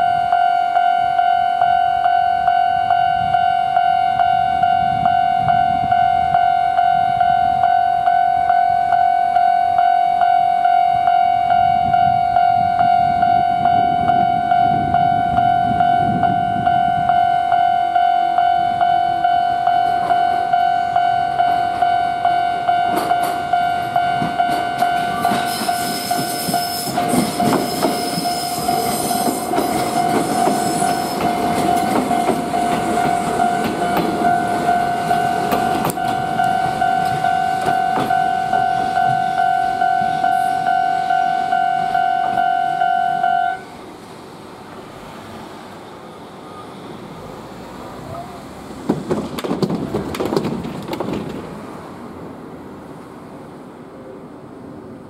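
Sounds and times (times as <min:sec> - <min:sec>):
level crossing warning bell: 0:00.0 - 0:43.7
electric train passing: 0:00.0 - 0:55.0
wheel and rail noise: 0:00.0 - 0:55.0.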